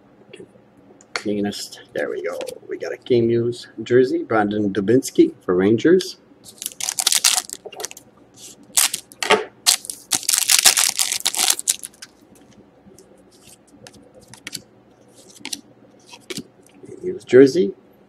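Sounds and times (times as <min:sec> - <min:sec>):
cards rustling: 0:06.5 - 0:08.0, 0:08.8 - 0:09.1, 0:09.7 - 0:12.1, 0:13.4 - 0:16.5
foil wrapper crinkling and tearing: 0:06.5 - 0:08.0, 0:08.7 - 0:09.1, 0:09.7 - 0:12.1.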